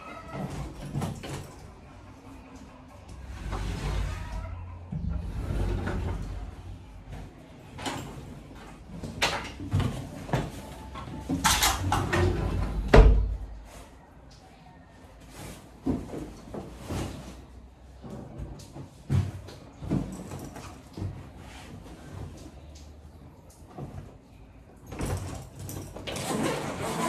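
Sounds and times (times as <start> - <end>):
sliding wardrobe door: 3.2 - 6.7, 7.7 - 13.5, 25.0 - 27.0.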